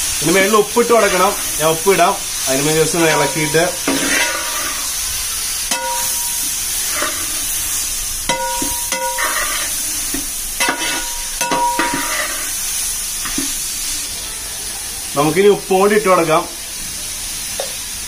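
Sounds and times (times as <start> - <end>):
onions sizzling in a pot: 0.0 - 18.0
metal utensils knocking on pot: 5.7 - 6.3, 8.3 - 9.5, 10.6 - 12.3.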